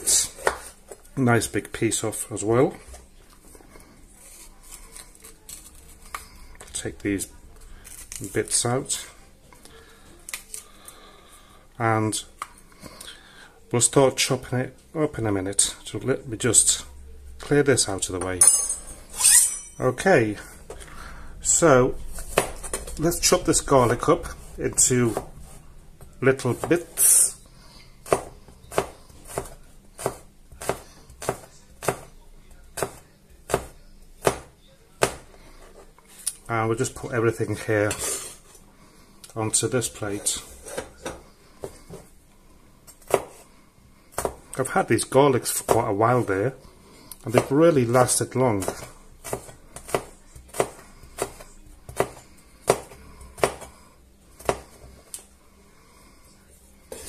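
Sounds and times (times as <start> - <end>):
knife chopping on cutting board: 0.4 - 0.7, 22.2 - 22.8, 28.0 - 32.1, 32.8 - 35.3, 43.1 - 43.4, 44.1 - 44.4, 48.6 - 53.7, 54.4 - 54.7.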